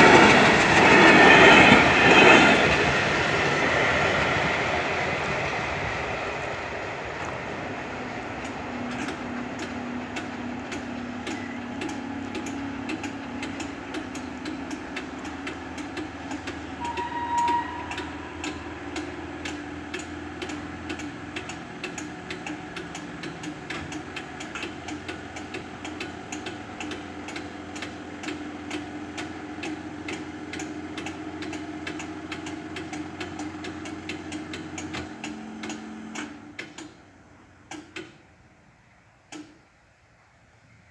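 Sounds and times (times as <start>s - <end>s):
level crossing bell ticking: 16.2s - 20.6s
short squeak: 16.8s - 18.2s.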